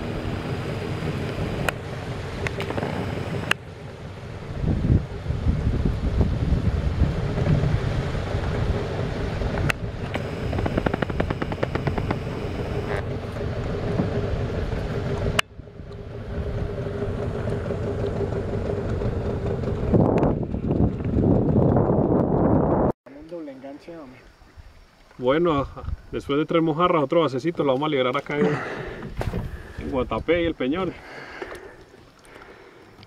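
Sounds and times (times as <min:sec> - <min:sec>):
boat motor hum: 0:00.0 - 0:22.9
wind rumbling on microphone: 0:00.0 - 0:23.0, 0:24.3 - 0:26.4, 0:28.8 - 0:30.6
sharp clicks: 0:09.7 - 0:12.9.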